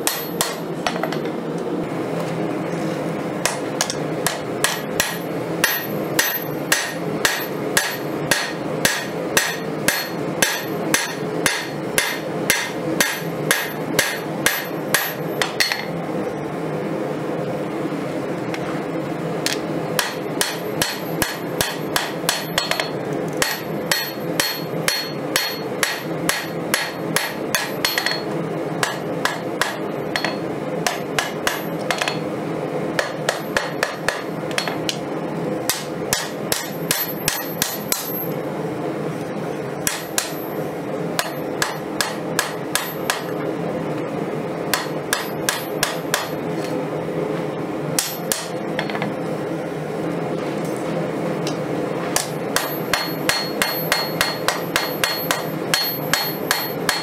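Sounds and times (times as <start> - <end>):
hammer striking steel on anvil: 0.0 - 1.3, 3.4 - 15.9, 19.5 - 32.2, 33.0 - 35.0, 35.7 - 38.4, 39.8 - 40.6, 41.2 - 43.4, 44.7 - 46.4, 48.0 - 49.0, 52.2 - 57.0
steady hum: 0.0 - 57.0.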